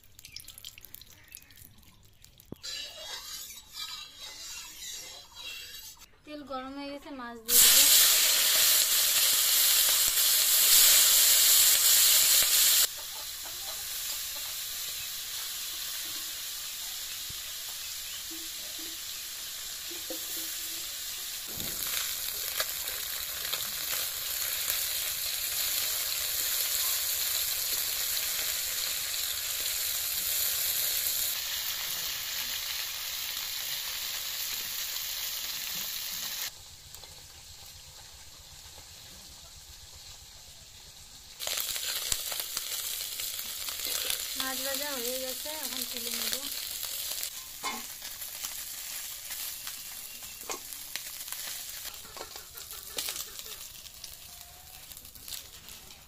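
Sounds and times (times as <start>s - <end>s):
fish sizzling in hot oil: 0.0s - 6.0s, 7.5s - 56.0s
metal spatula stirring: 2.6s - 6.1s.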